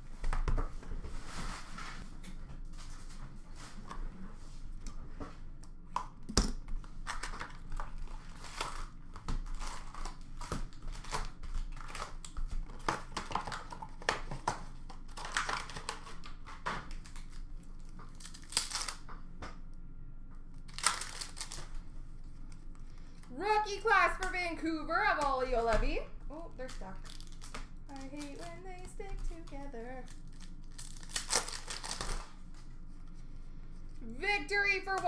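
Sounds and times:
wrappers crinkling and tearing: 0:07.0 - 0:19.1, 0:20.6 - 0:23.4, 0:26.3 - 0:32.8.

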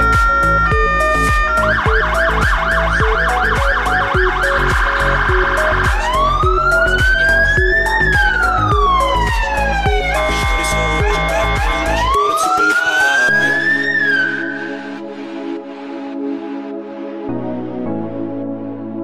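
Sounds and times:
fire engine siren: 0:00.0 - 0:15.1
background music with beat: 0:00.0 - 0:19.0.

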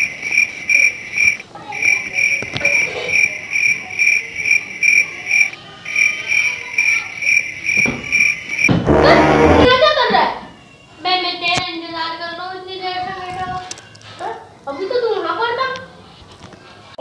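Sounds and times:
cricket chirping: 0:00.0 - 0:08.7.

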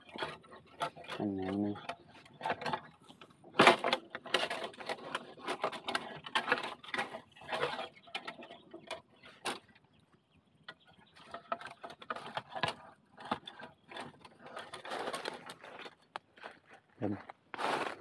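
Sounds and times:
bamboo leaves rustling and crackling: 0:14.4 - 0:18.0.

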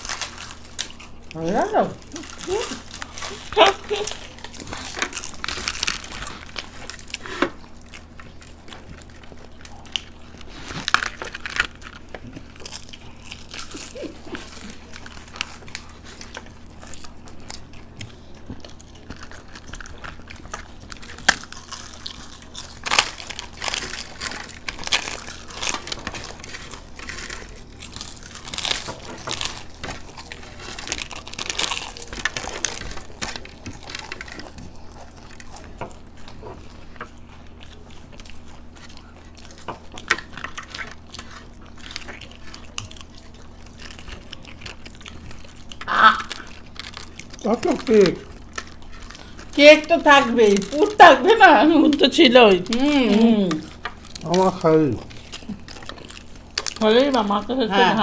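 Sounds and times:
people crunching crisp shells: 0:00.0 - 0:58.0.

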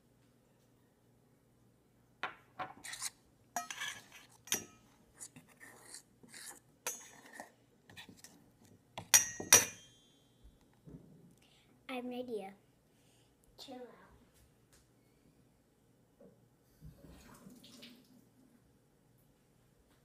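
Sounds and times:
metal spoon scraping a pot: 0:02.8 - 0:08.4.

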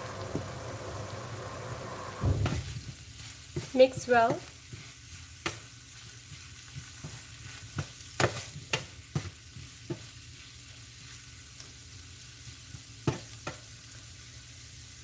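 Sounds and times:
food sizzling in a frying pan: 0:00.0 - 0:15.0
spatula knocking and scraping pan: 0:02.2 - 0:10.2.

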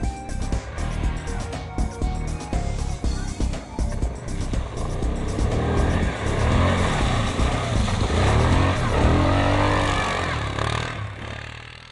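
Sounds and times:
quad bike engine revving: 0:04.2 - 0:11.9.

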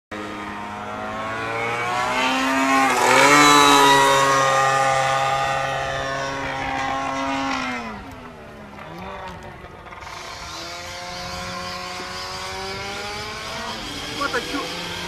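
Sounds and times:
model airplane engine droning: 0:00.2 - 0:15.0.

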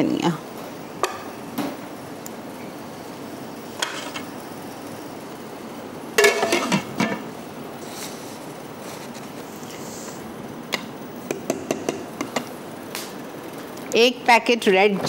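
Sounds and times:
utensils knocking on cooking pot: 0:06.2 - 0:07.2.

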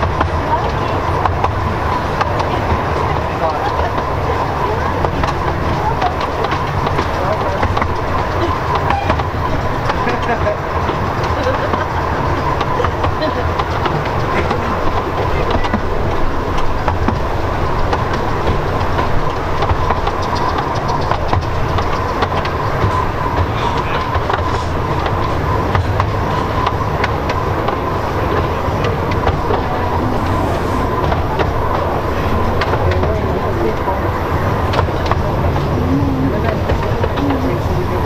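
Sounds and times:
clicking of wheels on track: 0:00.0 - 0:38.0
train wheels rumbling on rail: 0:00.0 - 0:38.0.

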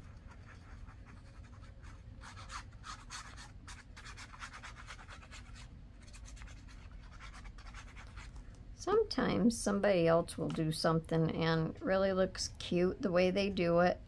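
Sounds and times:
glue nozzle scratching paper: 0:00.3 - 0:08.3.

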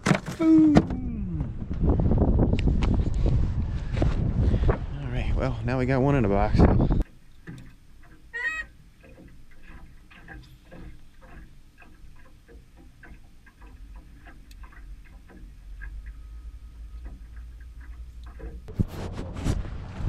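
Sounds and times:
steady low rumble: 0:01.0 - 0:07.1
faint irregular clicking: 0:07.0 - 0:18.7.

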